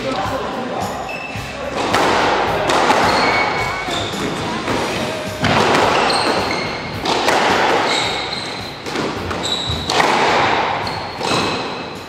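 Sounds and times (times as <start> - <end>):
sneakers squeaking on wooden floor: 1.0 - 12.0
squash ball hitting rackets and walls: 1.3 - 12.0.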